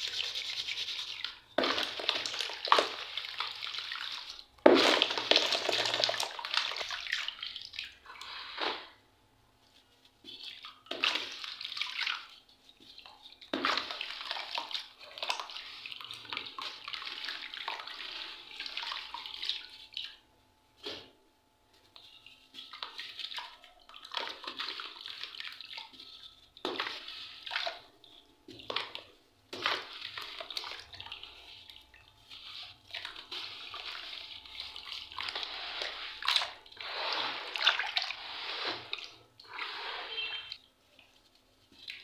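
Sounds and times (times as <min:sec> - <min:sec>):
water splashing and sloshing: 0:00.0 - 0:09.1, 0:09.7 - 0:42.0.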